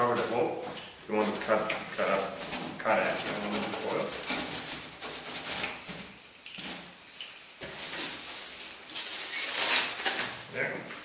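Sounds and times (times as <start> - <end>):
foil crinkling: 1.3 - 6.8, 7.6 - 10.5.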